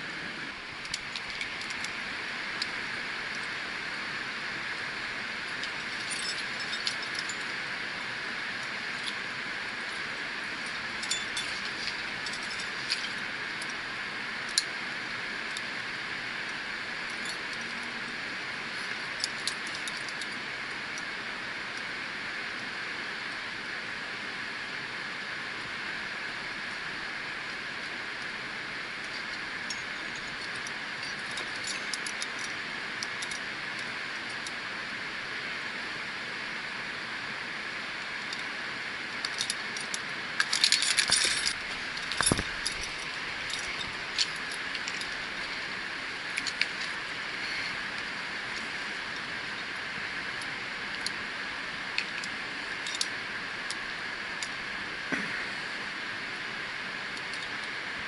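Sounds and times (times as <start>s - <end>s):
metal climbing gear jangling: 0.8s - 2.7s, 5.4s - 7.7s, 8.6s - 15.7s, 16.4s - 18.1s, 18.7s - 21.1s, 28.9s - 34.6s, 39.1s - 51.2s, 51.9s - 54.6s, 57.1s - 57.8s.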